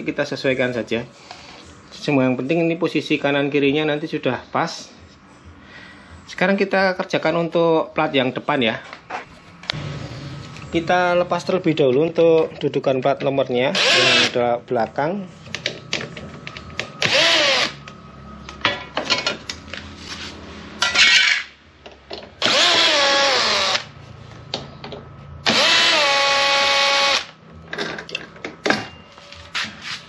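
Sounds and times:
cordless drill whining: 0:13.8 - 0:14.4, 0:17.0 - 0:17.8, 0:22.4 - 0:23.9, 0:25.4 - 0:27.3.

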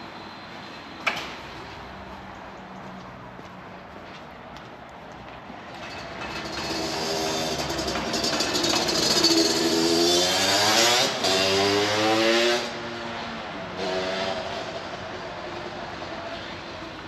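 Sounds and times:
vehicle engine accelerating: 0:06.2 - 0:13.0.

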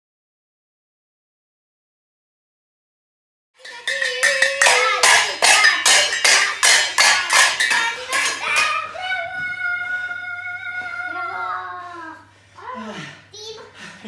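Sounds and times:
pot lids clanging: 0:03.6 - 0:08.8
held steady notes: 0:03.6 - 0:10.0.

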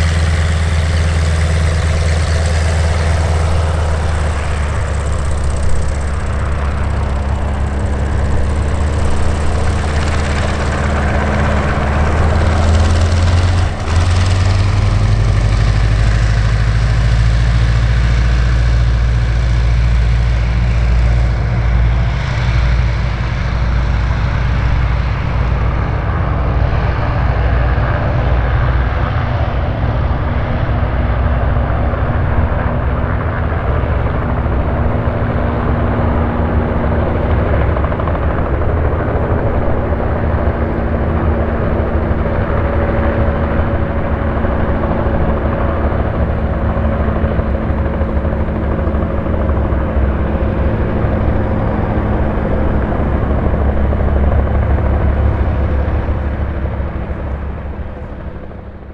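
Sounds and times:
biplane radial engine drone: 0:00.0 - 0:58.9.

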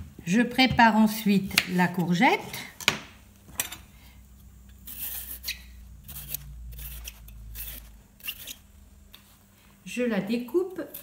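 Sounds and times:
peeler scraping courgette: 0:04.8 - 0:08.7, 0:10.5 - 0:11.0.

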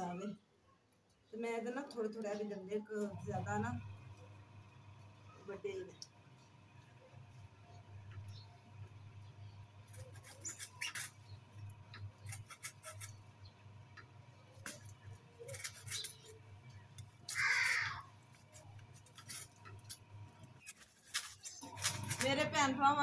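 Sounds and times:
rasping cut: 0:09.9 - 0:11.4, 0:12.0 - 0:13.3, 0:14.7 - 0:16.4
sickle scraping palm fronds: 0:12.2 - 0:13.2, 0:14.6 - 0:16.4, 0:17.3 - 0:22.7.

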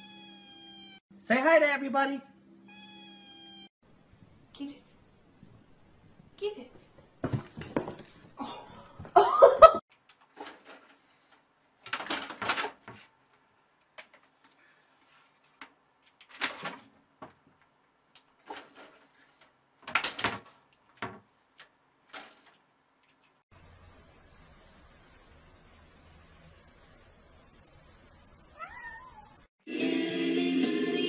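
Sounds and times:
kitten crying: 0:00.0 - 0:01.0, 0:02.7 - 0:03.7, 0:28.6 - 0:29.4.

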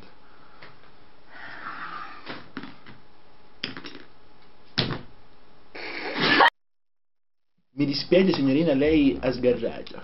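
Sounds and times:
soft breathy sound: 0:01.3 - 0:02.3.

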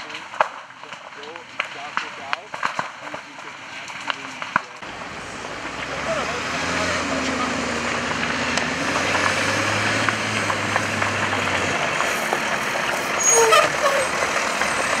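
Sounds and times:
fire engine driving: 0:00.0 - 0:15.0
brakes squealing: 0:03.0 - 0:15.0.

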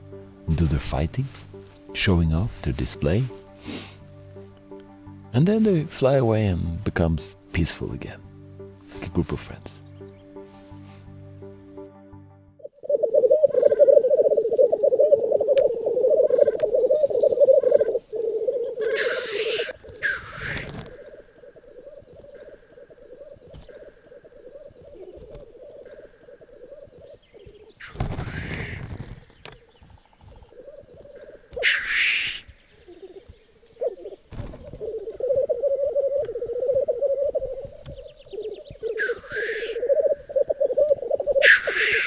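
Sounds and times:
loud hissing bird call: 0:03.6 - 0:04.0, 0:18.8 - 0:20.8, 0:31.6 - 0:32.6, 0:38.9 - 0:40.0, 0:41.4 - 0:42.0
grouse bubbling cooing song: 0:12.6 - 0:42.0.

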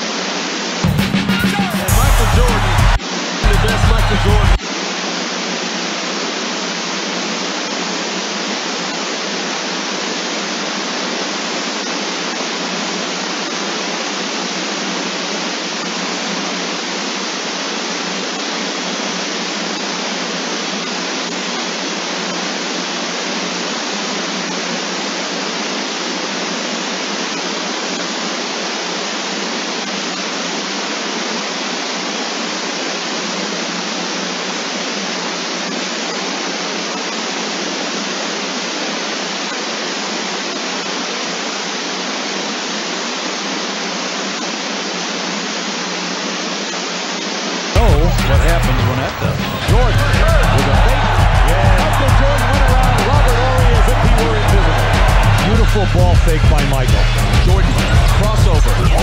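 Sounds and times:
static hiss: 0:00.0 - 0:51.5.

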